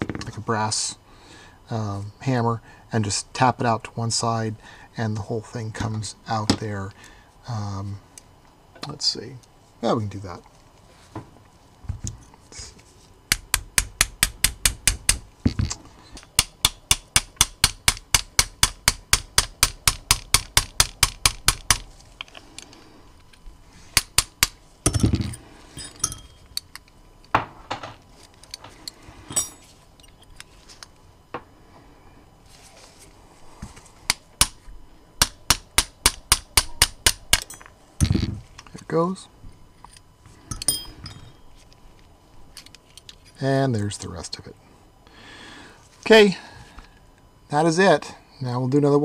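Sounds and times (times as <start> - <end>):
hammer tapping metal pin: 40.5 - 41.3.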